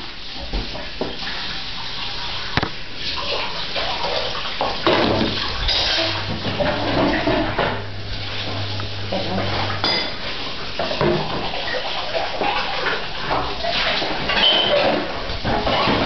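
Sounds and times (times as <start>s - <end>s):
dishes and cutlery clattering: 4.1s - 7.8s, 9.2s - 16.0s
low steady hum: 4.9s - 10.6s.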